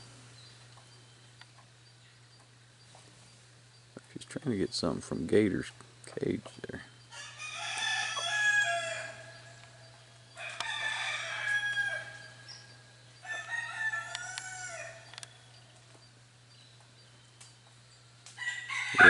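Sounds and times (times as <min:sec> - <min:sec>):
rooster crowing: 0:07.1 - 0:15.3, 0:18.4 - 0:19.0.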